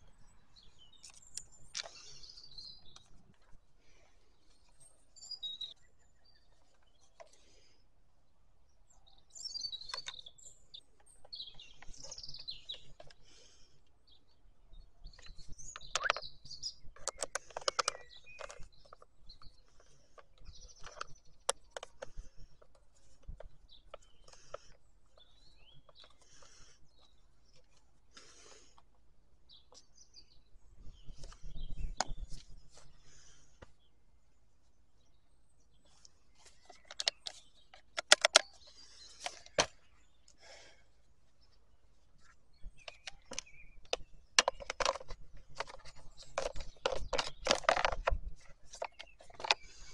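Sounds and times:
small birds chirping: 0.0 - 49.9
clicks and taps on plastic: 17.0 - 19.0, 42.8 - 49.6
plastic clips snapping: 17.0 - 19.0, 36.8 - 38.5.

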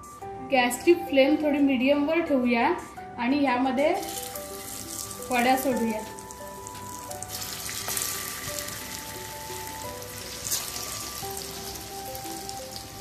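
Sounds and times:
food sizzling in hot oil: 4.0 - 13.0.

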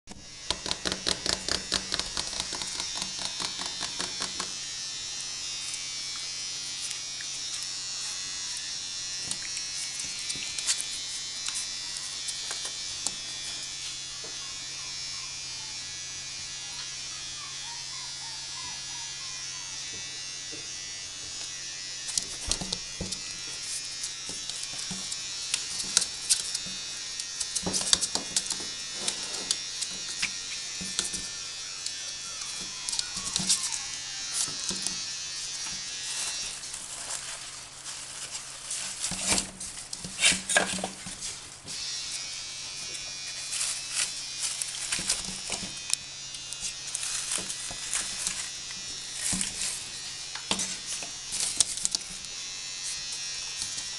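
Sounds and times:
puppy claws clicking on floor: 0.5 - 4.5.

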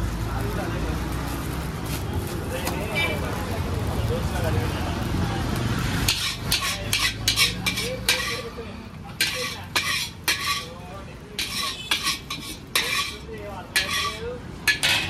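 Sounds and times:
metal spatula scraping wok: 6.0 - 15.0.

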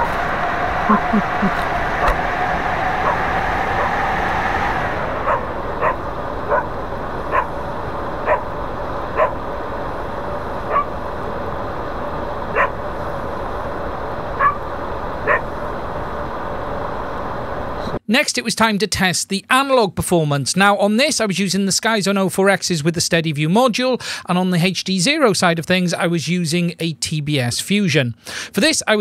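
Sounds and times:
faint steady hum: 0.0 - 18.0
background hiss: 0.0 - 25.3
dog barking: 5.2 - 6.7, 7.3 - 7.6, 8.2 - 8.5, 9.2 - 9.4, 10.7 - 11.0, 12.5 - 12.8, 14.4 - 14.6, 15.2 - 15.5.

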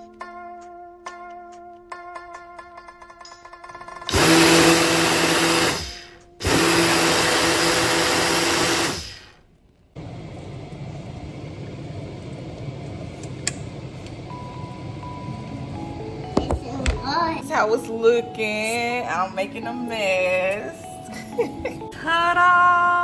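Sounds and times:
blender crushing ice: 4.1 - 9.3.

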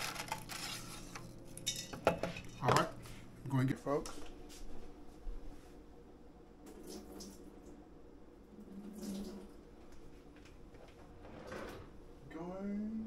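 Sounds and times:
water running into a sink: 8.7 - 9.6.

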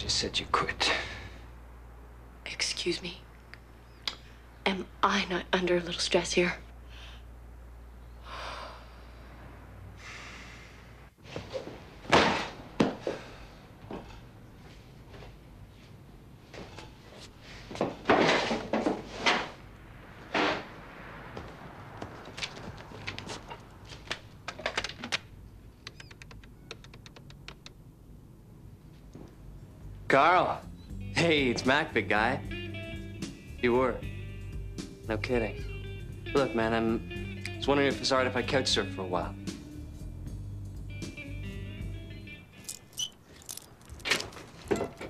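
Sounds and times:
soft breathy exhales: 8.2 - 11.1.

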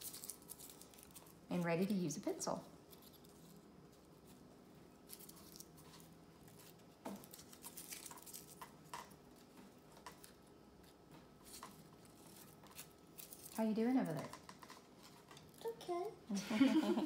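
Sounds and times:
tissue paper rustling and crinkling: 5.0 - 8.6.

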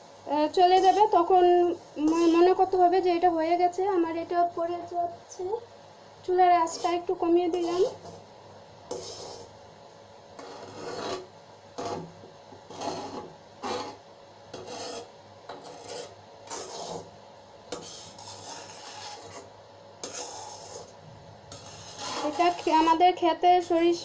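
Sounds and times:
paste frying in oil: 0.4 - 3.0, 6.2 - 8.3, 8.9 - 9.6, 10.3 - 23.1
spatula scraping metal pan: 0.6 - 1.2, 2.0 - 2.6, 6.6 - 8.2, 8.9 - 9.6, 10.4 - 17.1, 17.7 - 23.0.

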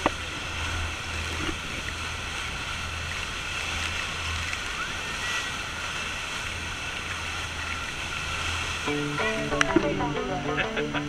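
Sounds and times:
waterfall spray and churning water: 0.0 - 10.2
low steady hum: 5.6 - 11.0.

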